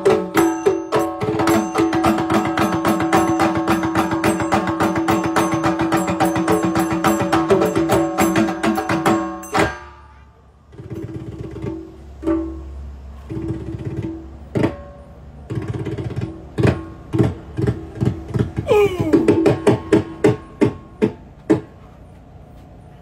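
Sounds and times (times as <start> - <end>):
hand drums struck: 0.0 - 10.0, 13.3 - 21.6.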